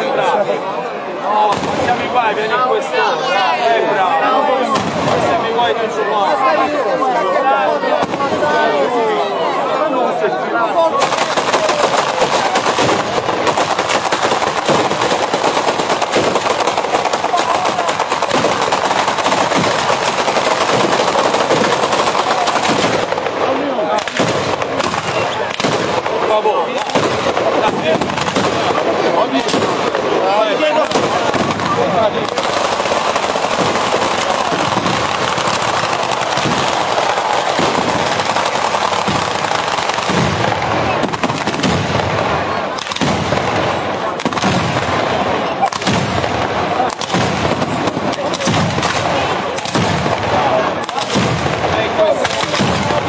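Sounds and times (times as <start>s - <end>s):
firecrackers going off in chain: 11.0s - 53.0s.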